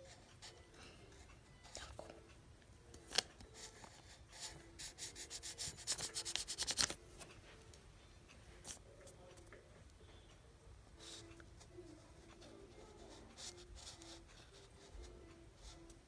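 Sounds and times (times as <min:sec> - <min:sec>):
marker scribbling on paper: 0:03.6 - 0:06.9, 0:12.8 - 0:15.8.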